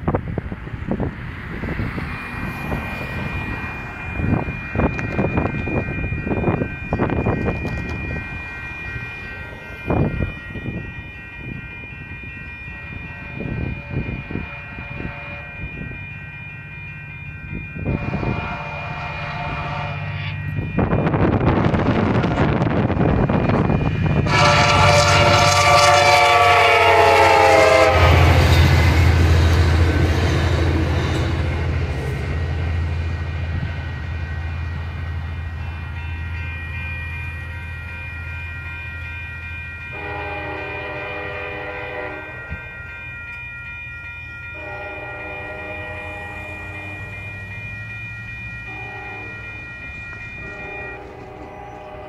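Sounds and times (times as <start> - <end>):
train wheel clatter: 4.4 - 8.4
locomotive air horn blasts: 13.2 - 15.6, 17.9 - 20.2, 21.8 - 22.7, 24.2 - 28.4, 39.9 - 42.6, 44.6 - 47.0, 48.7 - 49.4, 50.4 - 52.0.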